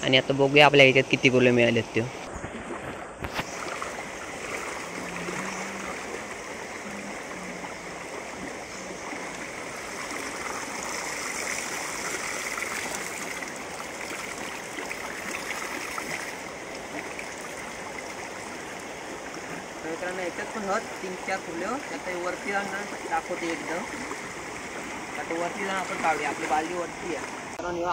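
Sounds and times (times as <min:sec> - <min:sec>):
stream flowing: 0:00.0 - 0:27.9
water pouring from pipe: 0:08.0 - 0:19.0.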